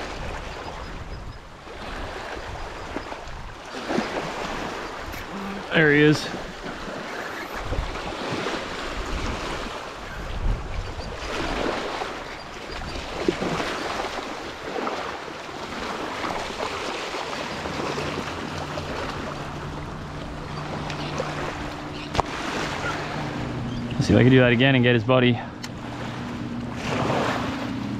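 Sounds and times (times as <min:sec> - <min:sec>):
wind on microphone: 0:00.0 - 0:14.8
small waves lapping on pebbles: 0:01.6 - 0:10.6, 0:11.2 - 0:19.7, 0:25.8 - 0:27.8
fish splashing and thrashing: 0:01.7 - 0:23.8, 0:25.7 - 0:27.9.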